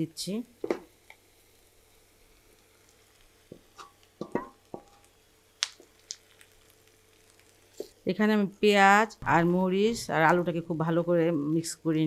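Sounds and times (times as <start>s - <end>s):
spatula knocking on pan: 3.5s - 5.0s.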